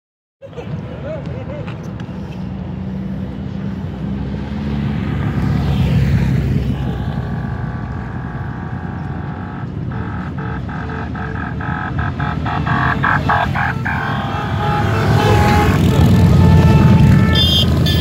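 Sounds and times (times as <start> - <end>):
motorcycle engines rumbling: 0.5 - 18.0
held horn tone: 6.6 - 18.0
short horn honks: 12.6 - 18.0.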